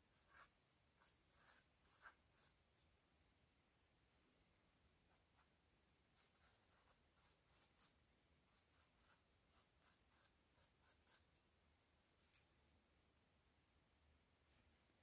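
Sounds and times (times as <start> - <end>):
pencil scratching on canvas: 0.1 - 2.6, 6.1 - 11.4.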